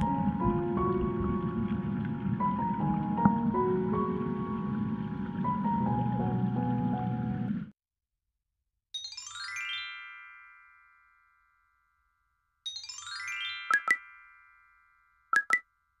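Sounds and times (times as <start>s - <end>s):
synthesized bell-like chime: 9.0s - 11.8s.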